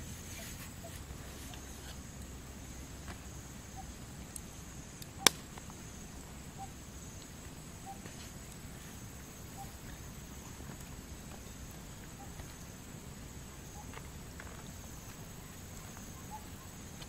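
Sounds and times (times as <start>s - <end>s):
sharp click: 5.2s - 5.4s.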